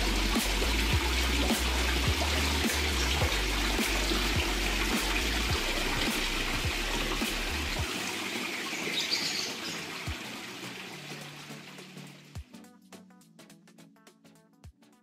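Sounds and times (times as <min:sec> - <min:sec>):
background music with bass: 0:00.0 - 0:08.0
waterfall splashing into pond: 0:00.0 - 0:12.3.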